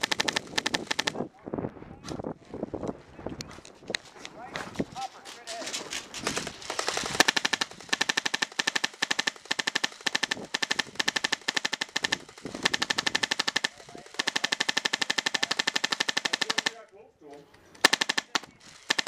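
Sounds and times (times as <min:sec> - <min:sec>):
airsoft gun full-auto bursts: 0:00.0 - 0:01.2, 0:05.9 - 0:16.8, 0:17.8 - 0:19.0.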